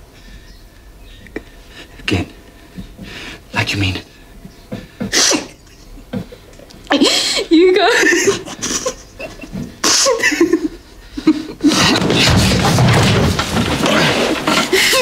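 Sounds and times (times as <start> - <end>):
rustling and scuffling: 11.6 - 15.0.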